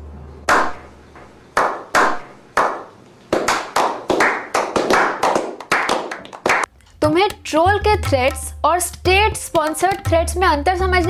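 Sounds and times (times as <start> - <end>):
group of people clapping: 1.6 - 6.7.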